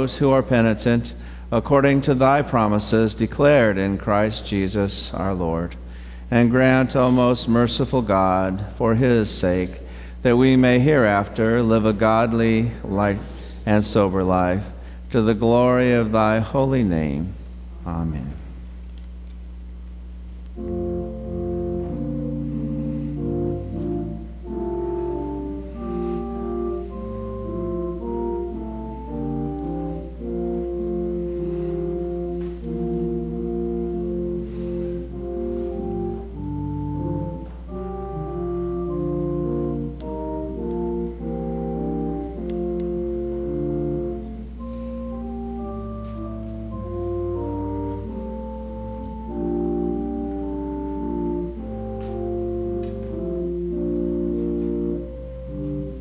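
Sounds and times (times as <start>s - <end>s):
organ playing slow chords: 0.0s - 56.0s.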